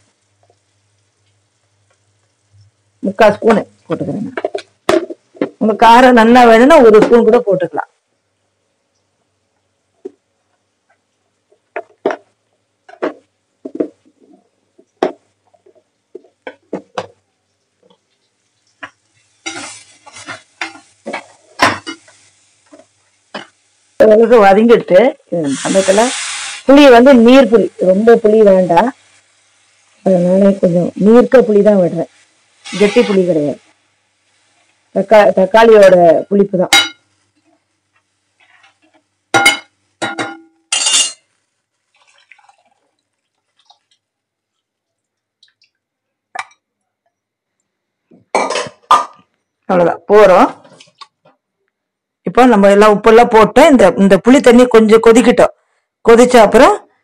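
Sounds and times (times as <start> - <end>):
food sizzling in oil: 0.0 - 8.3, 9.8 - 44.7
faint drips: 14.0 - 19.3, 41.7 - 47.8
metal spatula scraping a pan: 19.1 - 23.6, 25.5 - 26.8, 32.1 - 34.8, 40.4 - 41.3
liquid pouring splash: 41.9 - 44.1.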